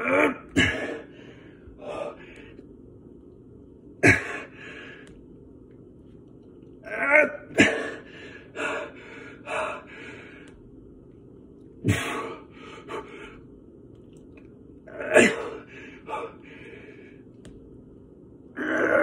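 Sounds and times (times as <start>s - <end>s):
man panting and grunting: 0.0s - 2.4s.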